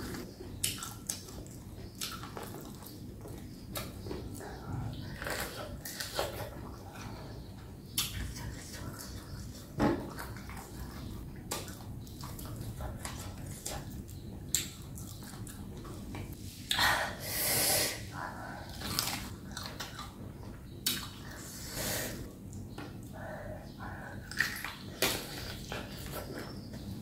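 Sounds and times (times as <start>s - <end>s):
chewing and crunching: 0.0s - 16.4s, 18.2s - 21.5s.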